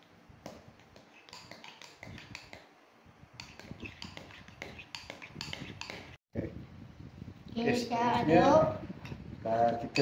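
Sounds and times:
metal spoon scraping ceramic bowl: 3.4s - 6.2s.

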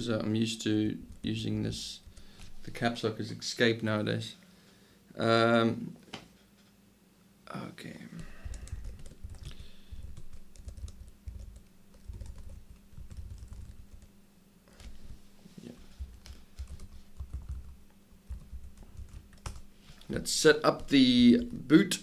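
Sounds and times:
laptop keyboard typing: 8.2s - 14.1s, 16.0s - 19.7s.

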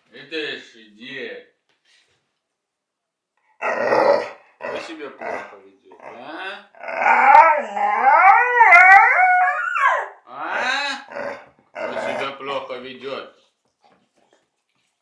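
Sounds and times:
dog howl-like moan: 3.6s - 4.4s, 6.8s - 12.2s
dog grumbling: 3.6s - 8.4s, 10.5s - 12.4s.

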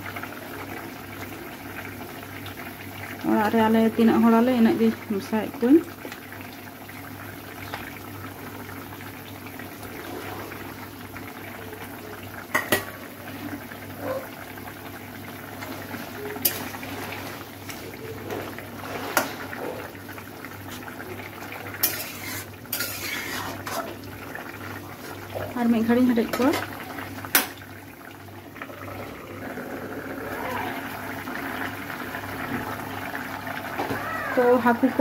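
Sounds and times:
curry bubbling in a pan: 0.0s - 35.0s.

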